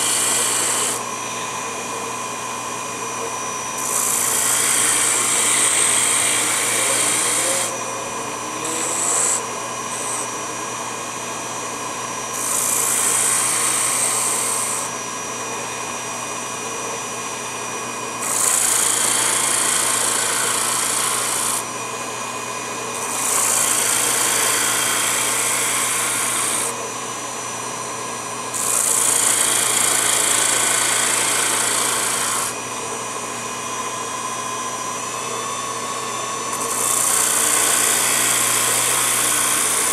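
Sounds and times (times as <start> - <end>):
wood sanding rasp: 0.0 - 1.0, 3.8 - 7.8, 8.6 - 9.4, 23.0 - 26.7, 28.6 - 32.5, 36.6 - 39.9
small motor whining: 0.0 - 1.6, 3.8 - 10.3, 12.3 - 14.9, 18.2 - 21.7, 22.9 - 26.8, 28.5 - 32.7, 36.5 - 39.9.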